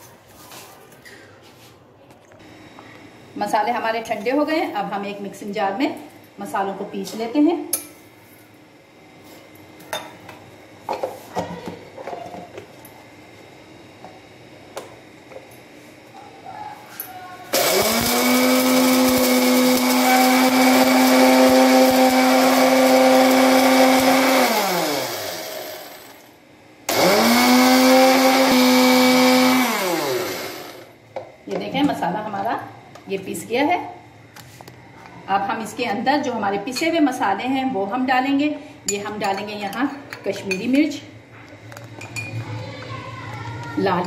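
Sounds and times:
mixer grinder motor whining: 17.5 - 26.3, 26.9 - 31.0.

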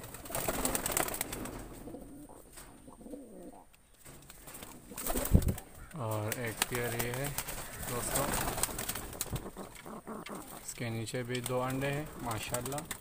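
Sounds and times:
pigeons cooing: 0.0 - 12.8.

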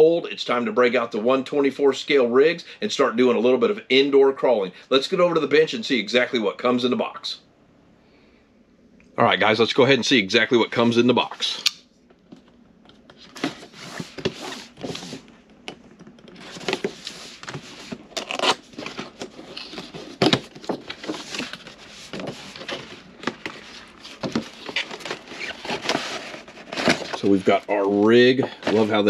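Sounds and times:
cardboard scraping and tearing: 16.4 - 28.0.

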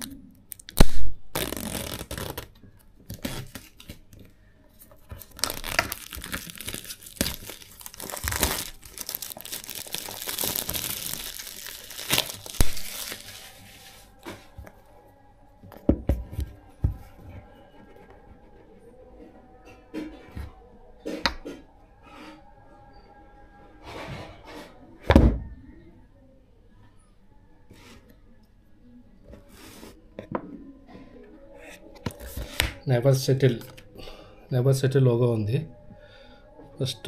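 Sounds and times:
packaging tearing and crumpling: 0.5 - 4.0, 5.0 - 14.2.

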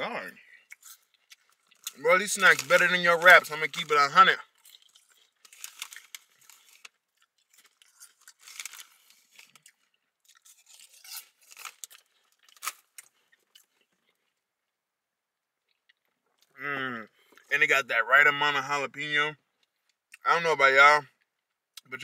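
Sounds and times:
person chewing crunchy chips: 0.4 - 14.5.

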